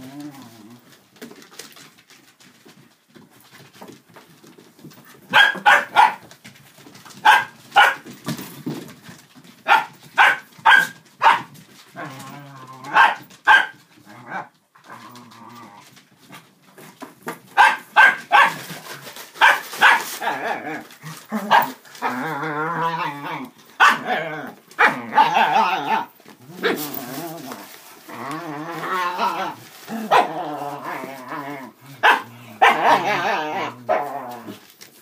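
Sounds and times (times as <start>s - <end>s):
dogs barking: 5.3s - 6.3s, 7.2s - 8.0s, 9.6s - 11.5s, 12.9s - 13.8s, 17.6s - 18.7s, 19.4s - 20.2s, 23.8s - 24.1s, 24.8s - 26.0s, 32.0s - 33.2s.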